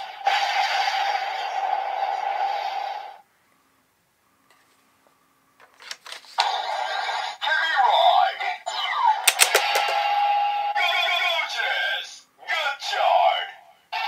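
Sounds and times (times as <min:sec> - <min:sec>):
plastic clicks of toy belt: 0:09.3 - 0:10.0.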